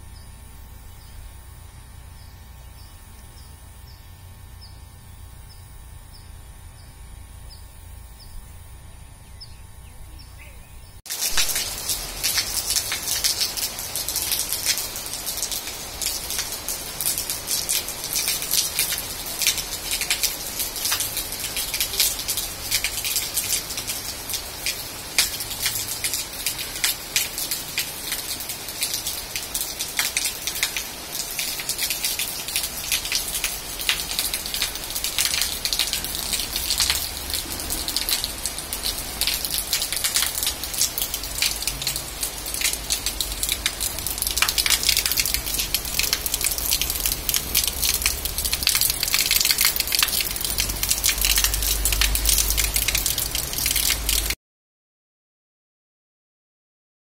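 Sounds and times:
close raindrop hits: 11.1 - 54.4
rain falling on leaves and concrete: 11.1 - 54.4.

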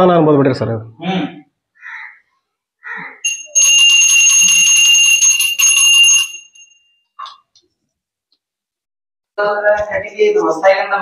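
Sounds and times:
metal bell rung rapidly: 3.2 - 6.9.

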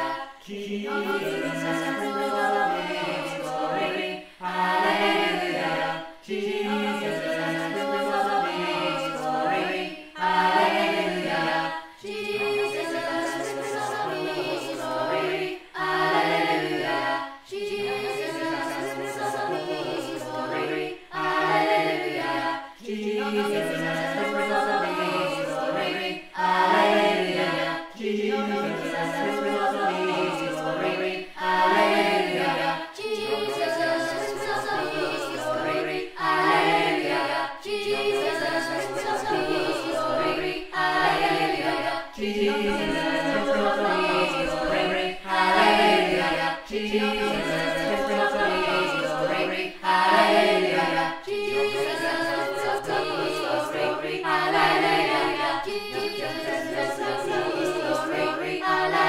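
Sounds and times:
group singing unaccompanied: 0.0 - 59.0.

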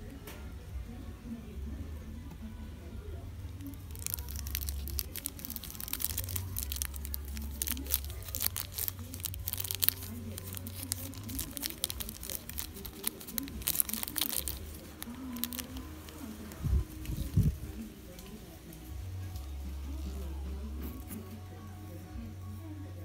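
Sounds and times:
plastic bag crinkling: 3.6 - 17.8.

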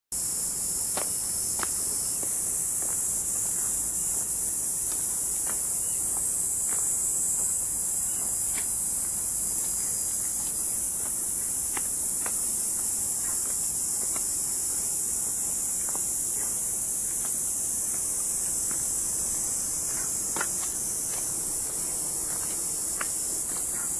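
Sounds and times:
insects chorus: 0.1 - 23.9
faint footsteps: 1.0 - 23.9.

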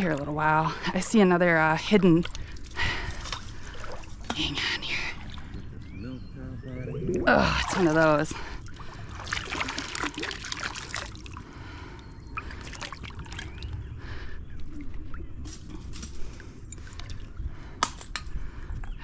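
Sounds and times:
river water splashing: 1.8 - 5.9, 6.9 - 11.6, 12.6 - 13.7.

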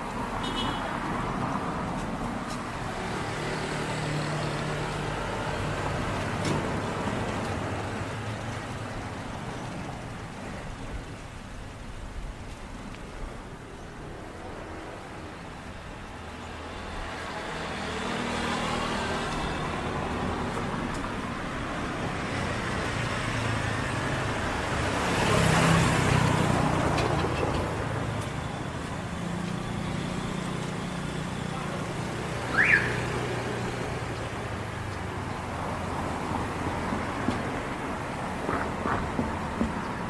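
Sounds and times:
street traffic: 0.0 - 40.0
vehicle passing close by: 17.3 - 28.1.

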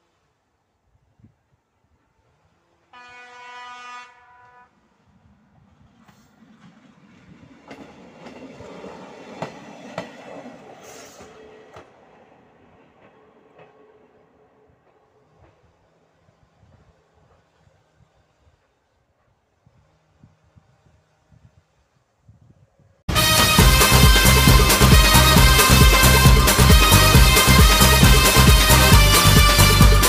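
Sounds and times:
train rumbling on rails: 1.3 - 30.0
train horn blast: 2.4 - 5.0, 23.1 - 30.0.

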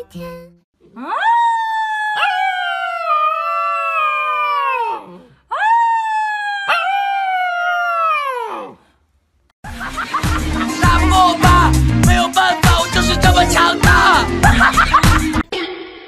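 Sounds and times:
puppy howling: 0.9 - 8.8, 12.8 - 14.4.

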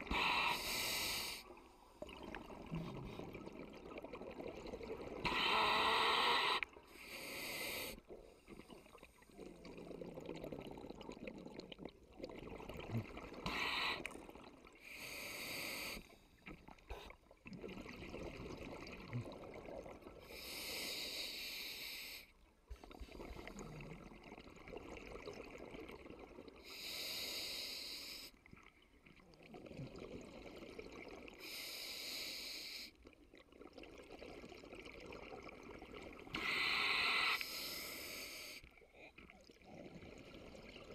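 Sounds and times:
diver breathing through regulator: 0.0 - 1.5, 5.2 - 8.1, 14.8 - 16.2, 36.3 - 38.6
low rumble of water: 1.4 - 5.8, 8.0 - 14.9, 16.2 - 20.3, 22.4 - 26.7.

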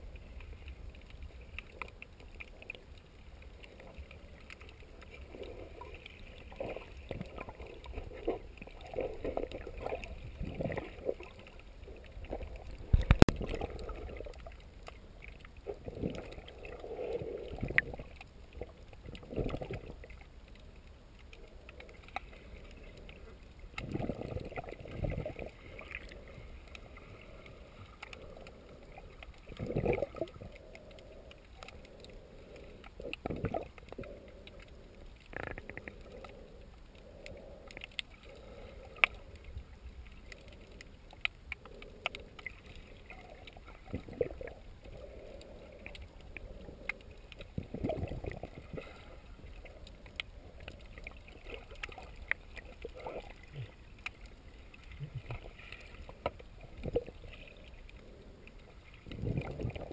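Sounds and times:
muffled underwater rush: 0.0 - 59.9
sharp underwater clicks: 0.0 - 59.9
surges of water movement: 0.0 - 59.9.

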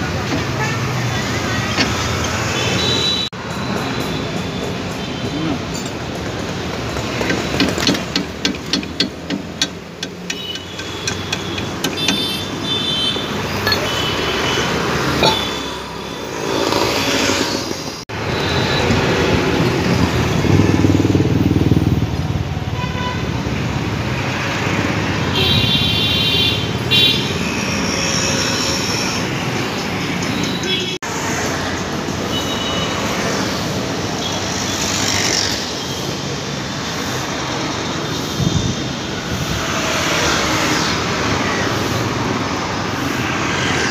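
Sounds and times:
vehicles passing: 0.0 - 43.9
sharp metal knocks: 5.8 - 12.6, 13.5 - 14.2, 15.1 - 15.8.

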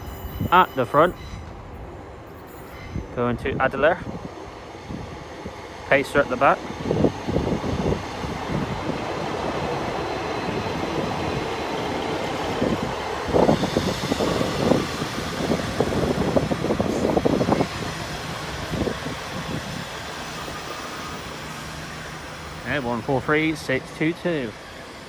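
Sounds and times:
diesel train engine: 0.0 - 25.0
wheels rumbling on rails: 0.0 - 25.0
train knocks and thumps: 6.6 - 21.7.

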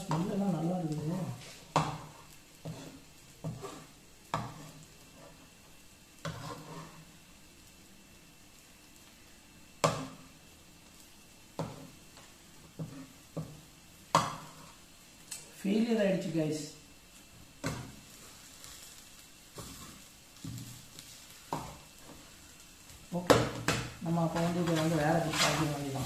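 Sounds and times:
spatula scraping frying pan: 0.0 - 5.6, 6.2 - 7.2, 12.6 - 14.9, 17.6 - 22.5, 23.4 - 26.0
faint egg sizzling: 0.0 - 26.0.

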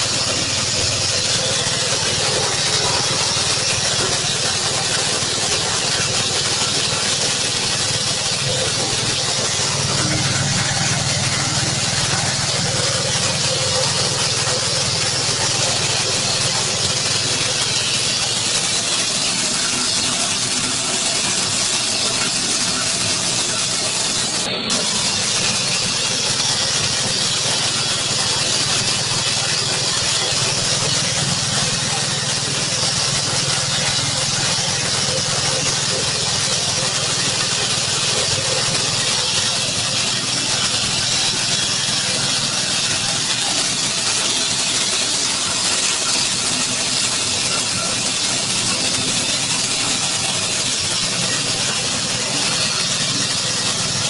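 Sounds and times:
grinding mill rushing noise: 0.0 - 54.0.

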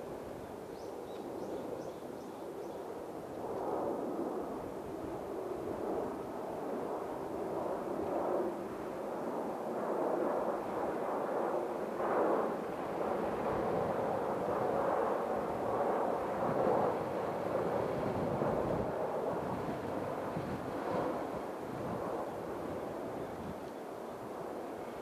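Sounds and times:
jet airliner engine rumble: 0.0 - 25.0.

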